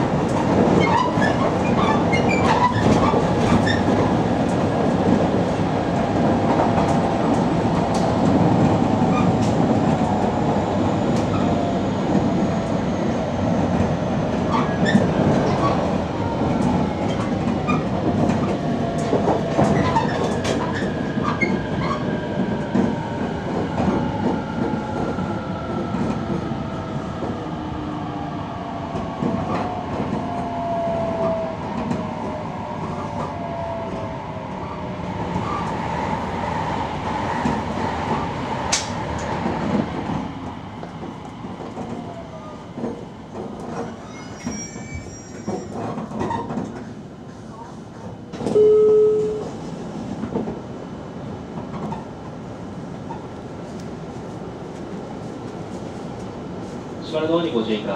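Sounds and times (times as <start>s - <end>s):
rail joint clicks: 6.0s - 10.3s, 11.1s - 11.5s, 16.5s - 23.0s, 37.3s - 47.0s, 47.9s - 50.6s, 51.5s - 52.2s, 52.9s - 55.6s.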